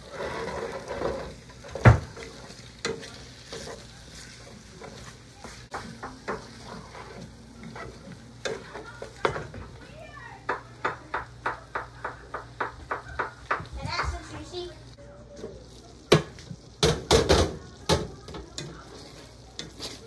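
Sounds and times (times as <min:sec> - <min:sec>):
wooden spatula scraping a pan: 0:00.0 - 0:10.6, 0:18.3 - 0:20.0
meat sizzling in a frying pan: 0:00.0 - 0:20.0.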